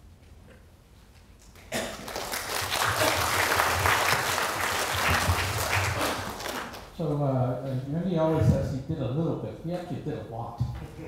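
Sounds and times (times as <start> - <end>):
audience applauding: 1.5 - 6.9.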